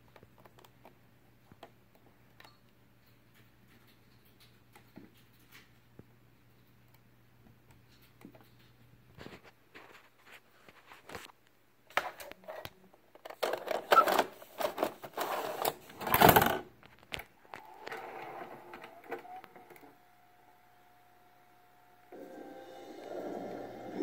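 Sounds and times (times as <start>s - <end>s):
loading mechanism whirring: 17.2s - 21.1s.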